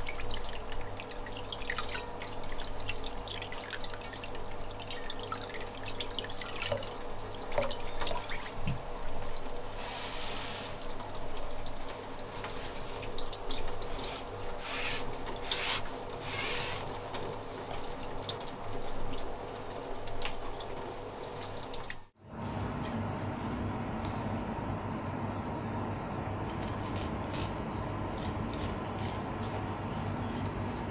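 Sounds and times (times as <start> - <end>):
water dripping: 0.0 - 9.9, 10.7 - 22.1
tap water splashing into bowl: 1.5 - 9.5.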